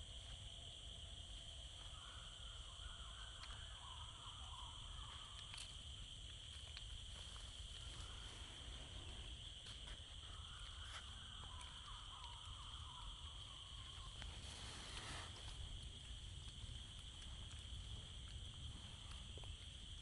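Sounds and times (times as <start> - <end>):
high-pitched insect drone: 0.0 - 15.5
faint ticks: 3.2 - 3.7, 5.0 - 8.3, 9.0 - 20.0.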